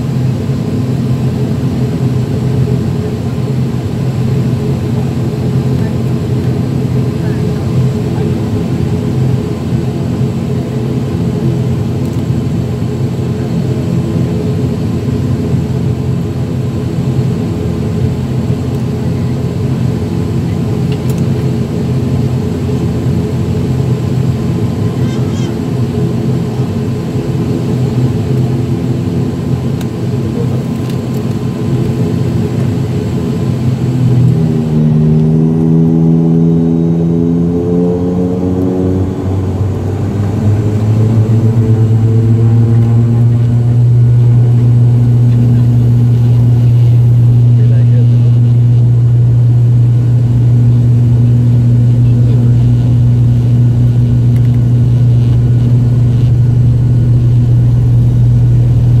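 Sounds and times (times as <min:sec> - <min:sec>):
turboprop engine hum: 0:00.0 - 0:59.0.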